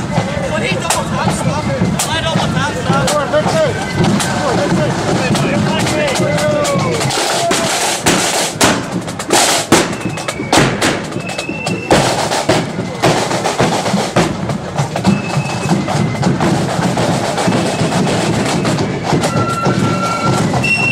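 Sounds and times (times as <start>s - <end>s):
bass drum strikes: 0.0s - 11.2s
snare drums: 0.0s - 20.9s
flutes playing: 9.8s - 13.7s, 15.0s - 20.9s.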